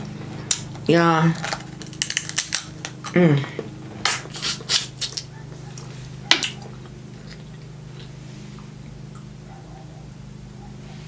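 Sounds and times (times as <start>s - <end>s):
steady low hum: 0.0s - 11.0s
crab shells cracking: 1.4s - 3.1s.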